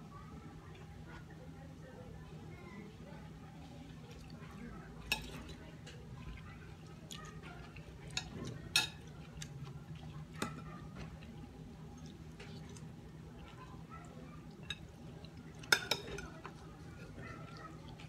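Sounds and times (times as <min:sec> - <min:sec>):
chewing: 0:03.5 - 0:18.0
cutlery clinking on glass: 0:08.1 - 0:09.1, 0:15.6 - 0:16.4.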